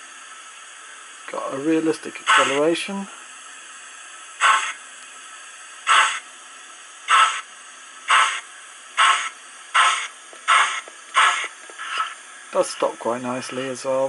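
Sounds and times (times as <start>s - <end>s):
model steam locomotive chuffs: 0.0s - 3.4s, 4.3s - 4.8s, 5.7s - 6.3s, 6.9s - 14.0s.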